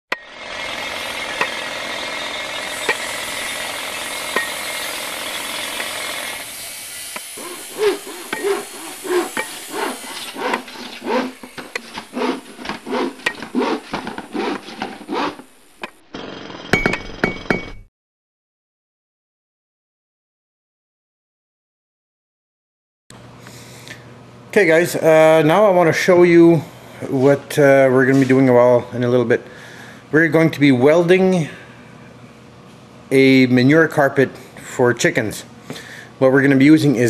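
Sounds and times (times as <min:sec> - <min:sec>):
tool rasping: 0:00.3 - 0:16.6
scraping strokes: 0:07.1 - 0:15.9.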